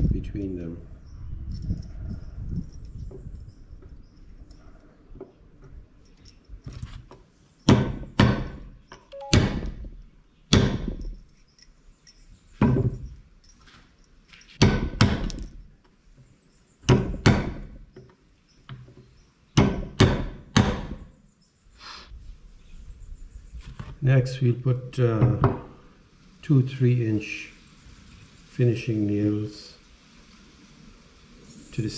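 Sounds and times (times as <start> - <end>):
hammer striking nails into wood: 7.7 - 9.9, 10.5 - 11.0, 14.6 - 15.4, 16.8 - 17.8, 19.6 - 21.1.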